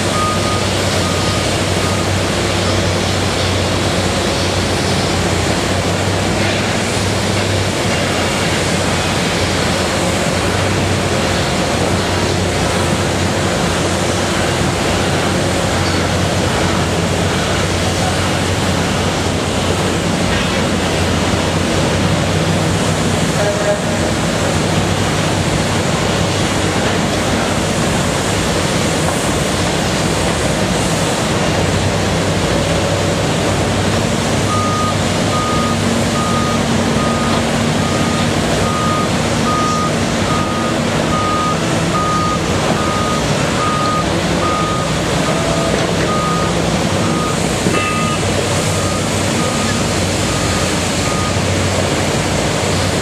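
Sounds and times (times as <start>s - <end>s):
constant background roar: 0.0s - 53.0s
excavator diesel engine running: 0.0s - 53.0s
backup alarm beeping: 34.5s - 51.4s.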